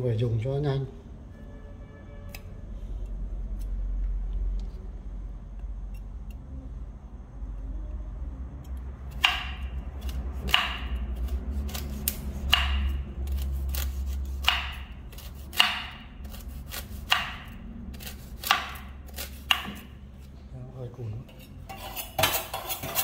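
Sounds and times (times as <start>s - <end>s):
knife chopping fruit: 9.0s - 20.4s.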